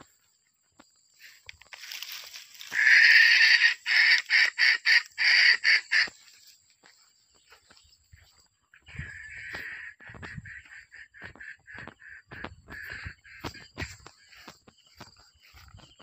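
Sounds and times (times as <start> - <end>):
jungle fowl crowing: 2.5 - 6.2, 8.8 - 14.5.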